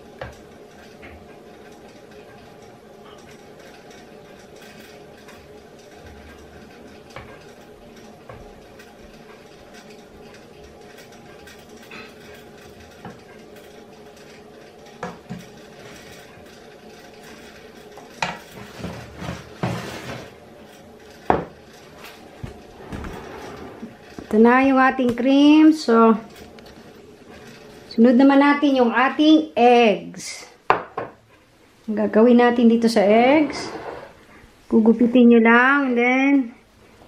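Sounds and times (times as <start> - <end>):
metal ladle scraping bowl and pot: 33.3 - 34.2.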